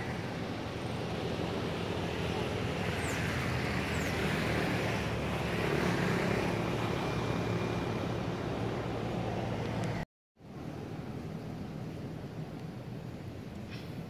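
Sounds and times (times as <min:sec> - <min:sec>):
outdoor rumble and hiss: 0:00.0 - 0:14.0.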